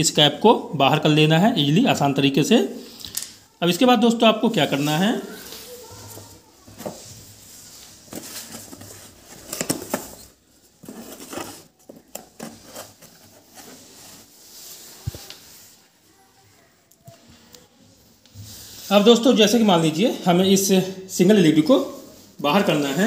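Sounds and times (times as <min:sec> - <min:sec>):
clicks taps and rustles: 0:08.0 - 0:13.7.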